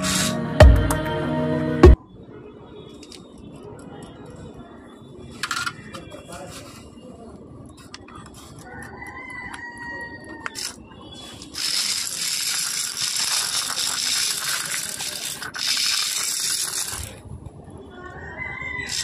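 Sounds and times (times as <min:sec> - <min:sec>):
toy car motor whirring and rattling: 0:00.0 - 0:00.4, 0:10.5 - 0:17.2.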